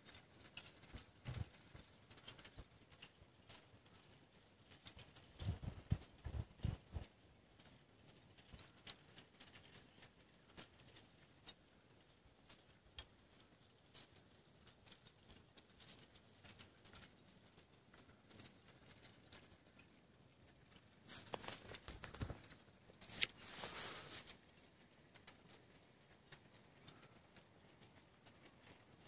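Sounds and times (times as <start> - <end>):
thin ice crackling: 15.9 - 29.0.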